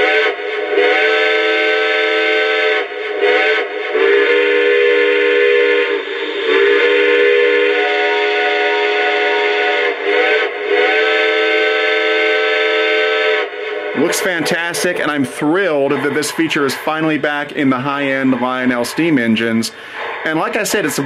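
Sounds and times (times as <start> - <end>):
chime steam whistle from speaker: 0.0 - 14.3.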